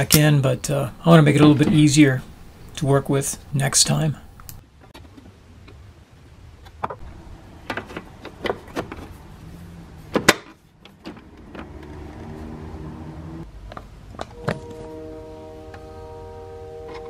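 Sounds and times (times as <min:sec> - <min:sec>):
low machine whir: 0:07.0 - 0:10.2.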